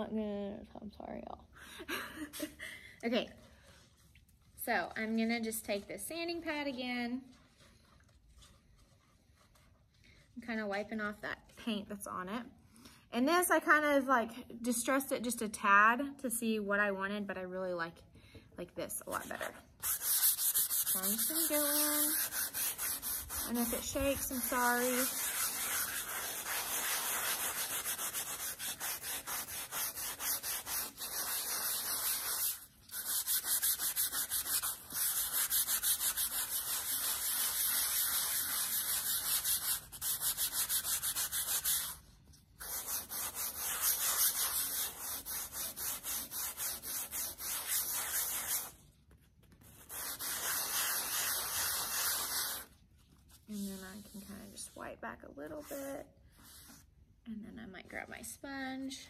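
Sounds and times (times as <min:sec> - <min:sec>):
sanding pad scrubbing paint: 0:19.8 - 0:42.0, 0:42.6 - 0:48.8, 0:49.7 - 0:52.7.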